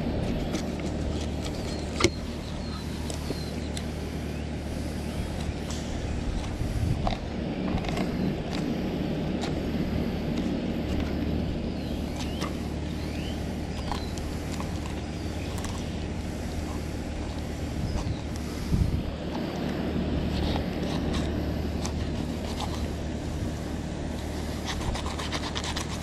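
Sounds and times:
low mechanical hum: 0.0s - 26.0s
knife crunching through fish scales: 24.2s - 26.0s.

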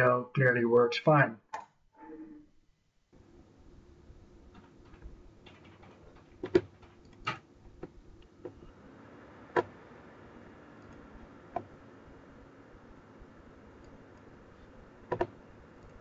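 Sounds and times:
faint steady hum: 0.0s - 16.0s
keyboard keystrokes: 15.1s - 16.0s.

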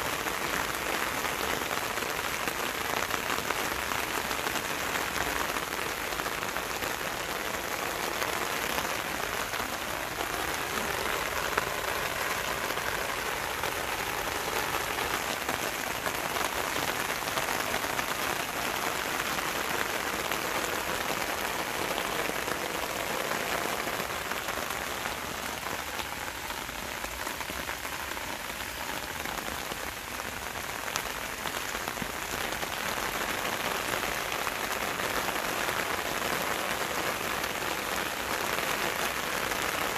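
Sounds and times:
rain falling on leaves: 0.0s - 39.9s.

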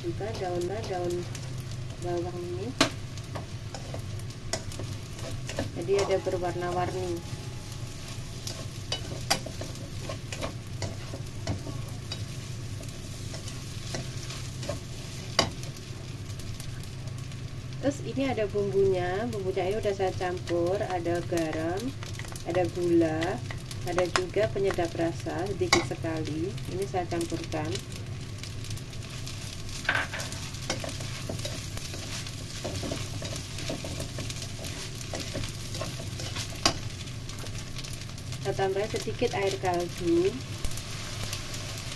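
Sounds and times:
food sizzling in a wok: 0.0s - 41.9s
steady low hum: 0.0s - 41.9s
spatula scraping a wok: 2.8s - 15.8s, 29.1s - 37.6s
spatula scraping and knocking pan: 29.8s - 36.9s.

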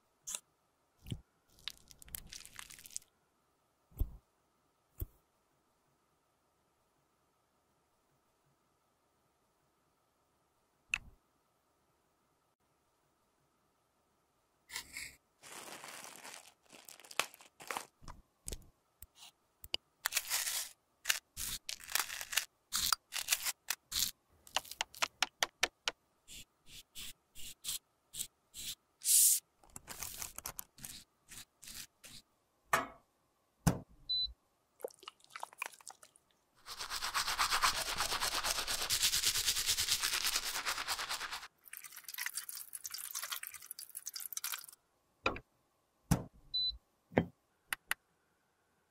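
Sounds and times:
cling wrap crinkling: 15.4s - 18.1s, 29.8s - 30.9s, 39.6s - 42.4s
brush scraping powder in plastic pan: 20.1s - 22.5s, 36.6s - 41.5s.

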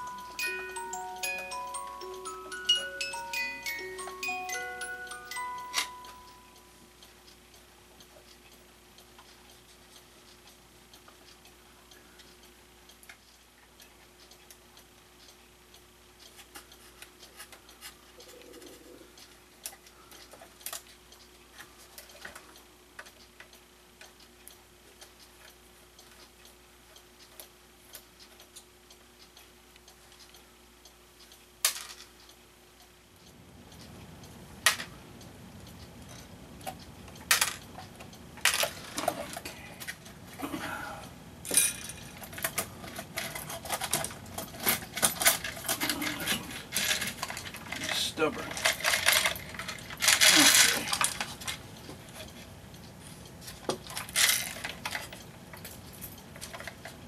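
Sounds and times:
clock parts clicking and clinking: 37.2s - 40.1s, 41.5s - 52.5s, 53.5s - 57.0s.

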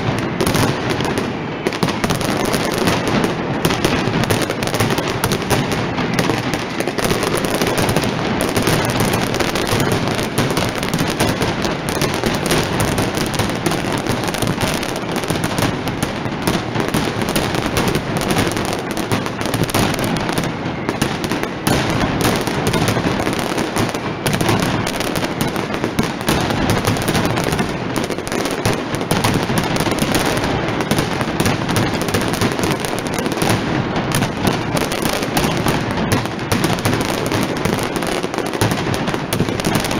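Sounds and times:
firecracker barrage: 0.0s - 39.9s.

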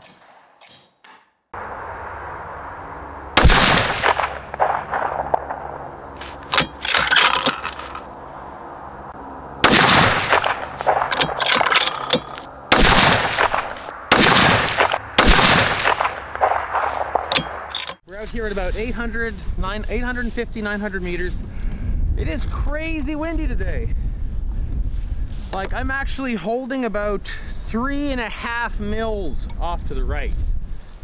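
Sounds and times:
rifle shots: 3.4s - 5.8s, 9.6s - 11.8s, 12.7s - 17.8s.

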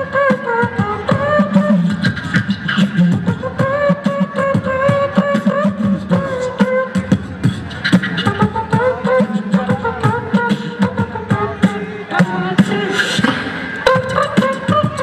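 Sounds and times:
beatboxing kick and snare: 0.0s - 15.0s
voices singing held melody: 8.1s - 15.0s.

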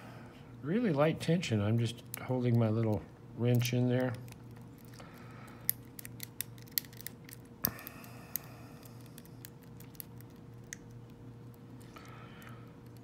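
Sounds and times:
lock pick clicking on pins: 5.6s - 11.1s.

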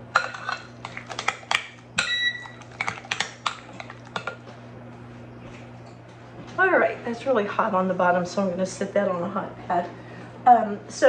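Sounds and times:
spoon scraping glass bowl: 0.2s - 4.4s.

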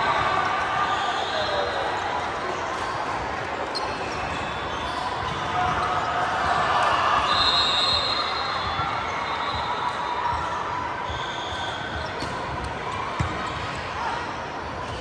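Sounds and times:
murmur of voices in a hall: 0.0s - 15.0s
sneakers squeaking on floor: 3.6s - 6.2s, 7.2s - 12.6s.

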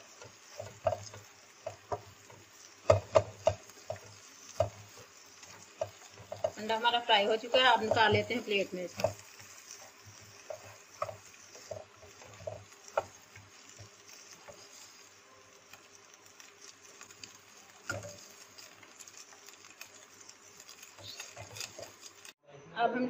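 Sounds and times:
spatula scraping frying pan: 0.0s - 22.4s.

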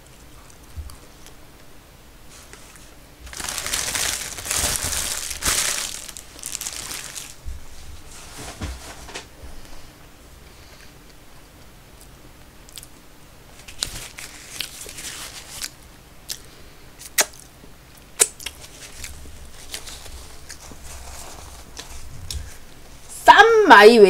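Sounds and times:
lip smacks and clicks: 17.0s - 17.5s, 18.2s - 18.6s.

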